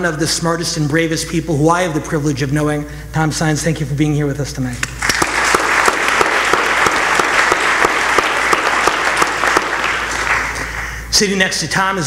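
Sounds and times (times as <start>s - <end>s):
audience applause: 5.0s - 11.0s.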